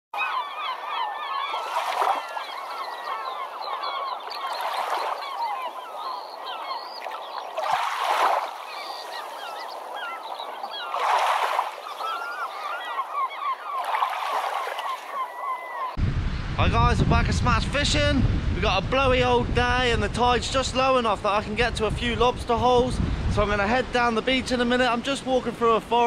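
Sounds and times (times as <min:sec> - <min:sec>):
chorus of many birds: 0:00.2 - 0:16.0.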